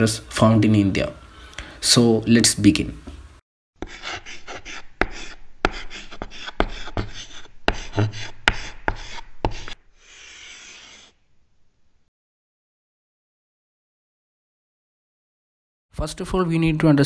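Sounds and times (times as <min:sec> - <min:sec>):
pen tapping paper: 0:03.8 - 0:09.8
pen scratching on paper: 0:03.8 - 0:11.2.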